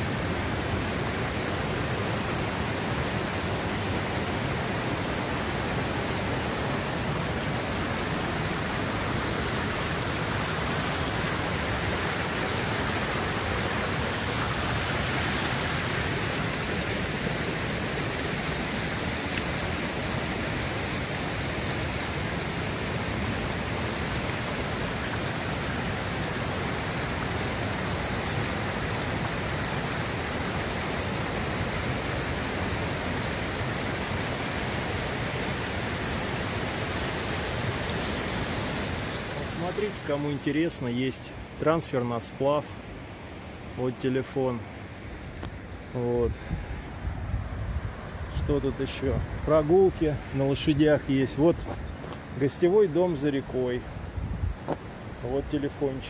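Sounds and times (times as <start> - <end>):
small waterfall splashing: 0.0 - 41.6.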